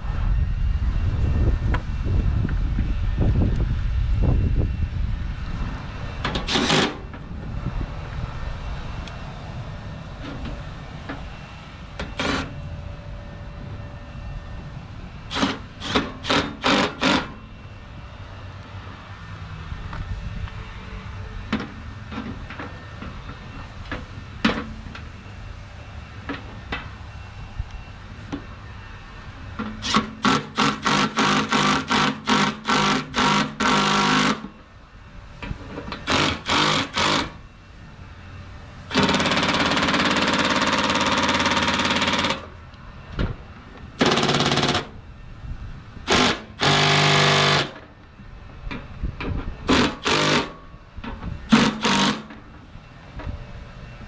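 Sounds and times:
power drill driving screws: 6.4s - 7.0s, 15.3s - 17.3s, 29.8s - 34.5s, 36.0s - 37.4s, 38.9s - 42.4s, 46.1s - 47.7s, 49.7s - 50.5s, 51.5s - 52.3s.

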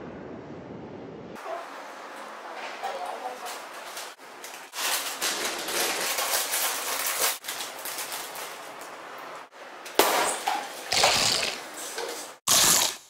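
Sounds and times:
chip bag crinkling: 4.7s - 8.8s
chip being bitten: 10.9s - 11.6s, 12.5s - 13.0s.

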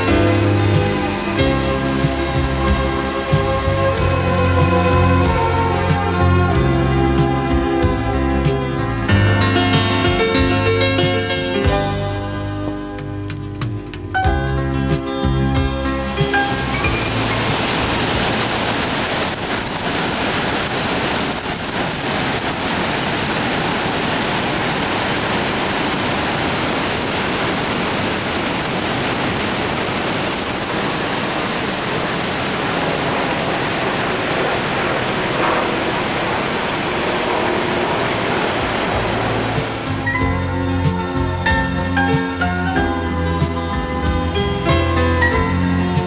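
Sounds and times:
waterfall roar: 0.0s - 7.5s, 16.1s - 42.5s.

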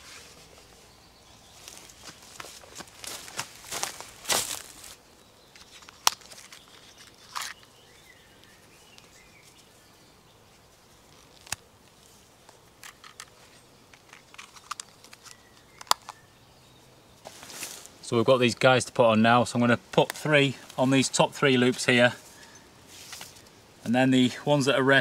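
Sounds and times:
faint birdsong: 0.0s - 25.0s
light rustling of cord: 11.0s - 16.2s, 20.0s - 23.6s.

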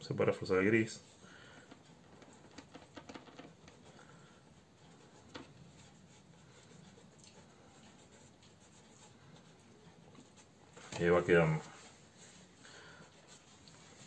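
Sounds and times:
fingertips rubbing pastel on paper: 3.5s - 10.7s.

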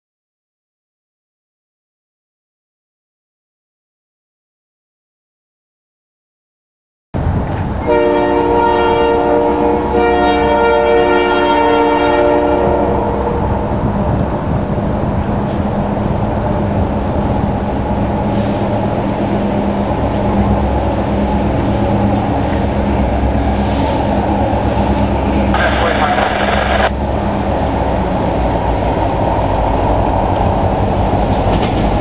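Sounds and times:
locomotive rumble: 7.2s - 32.0s
diesel locomotive horn blasts: 7.8s - 14.1s.

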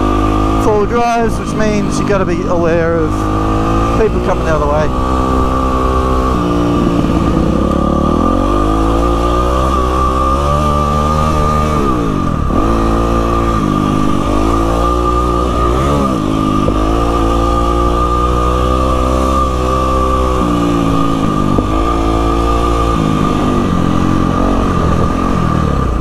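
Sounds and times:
dirt bike engine revving: 0.0s - 26.0s.

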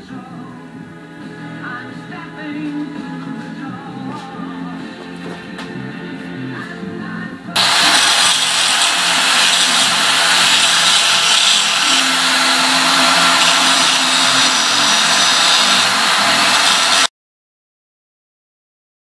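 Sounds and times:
welding hiss: 7.6s - 17.1s.

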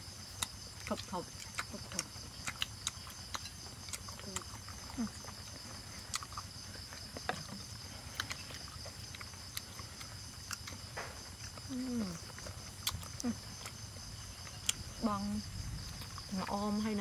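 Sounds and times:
insects chirring: 0.0s - 17.0s
person humming mmm: 11.7s - 12.2s.

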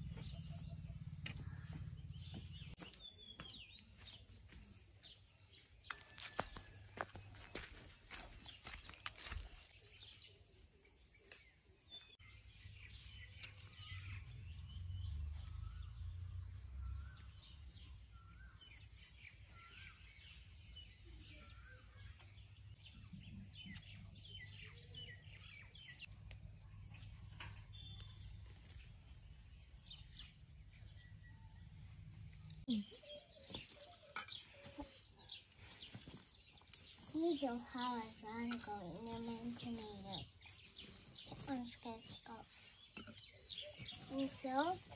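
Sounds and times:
birds chirping: 0.0s - 44.9s
footsteps: 6.0s - 9.7s.

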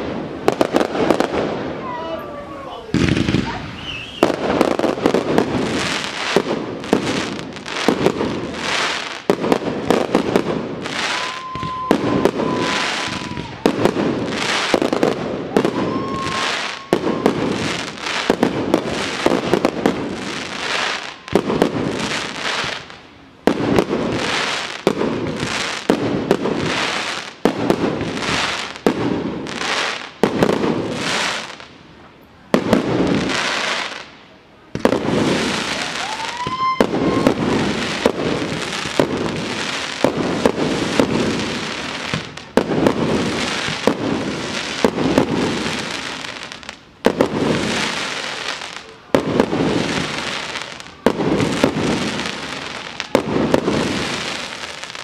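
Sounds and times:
firework whistle: 2.1s - 5.5s, 10.4s - 19.7s, 20.7s - 21.7s, 35.3s - 39.4s
firework launches and bursts: 2.9s - 31.7s, 34.7s - 55.0s.

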